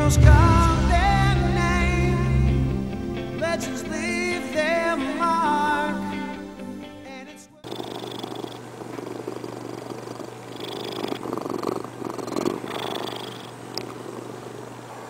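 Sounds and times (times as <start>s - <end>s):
song: 0.0s - 7.6s
cat purring: 7.6s - 15.0s.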